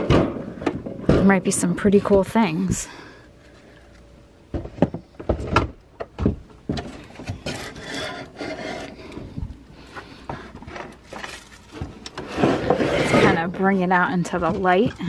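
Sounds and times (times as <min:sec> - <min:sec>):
hollow wooden knocks: 0:04.5 - 0:07.6
scraping and rubbing in cabinet: 0:06.7 - 0:15.0.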